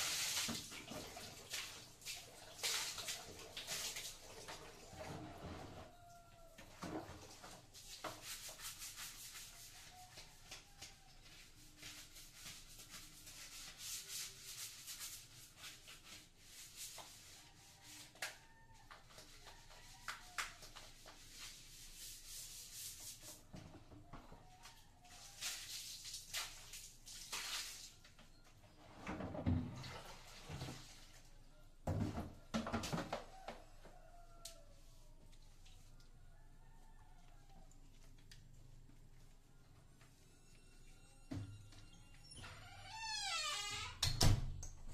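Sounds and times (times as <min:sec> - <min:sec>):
scrubbing tiled floor: 0:00.0 - 0:23.7, 0:24.6 - 0:28.3, 0:29.8 - 0:31.4.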